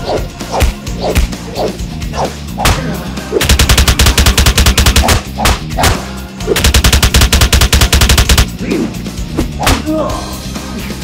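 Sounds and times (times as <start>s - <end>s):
machine-gun fire bursts: 3.4s - 5.3s, 6.6s - 8.5s.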